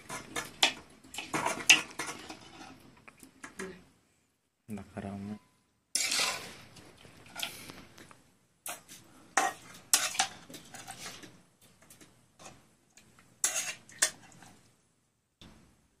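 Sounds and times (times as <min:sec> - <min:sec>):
steel spoon clinking and scraping: 0:06.0 - 0:06.6, 0:08.7 - 0:11.3, 0:13.4 - 0:14.6.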